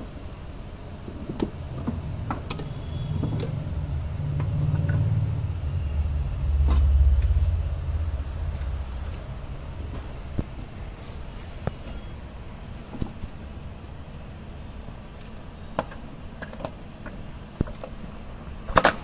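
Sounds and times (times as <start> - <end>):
low rumble: 1.6 - 14.8.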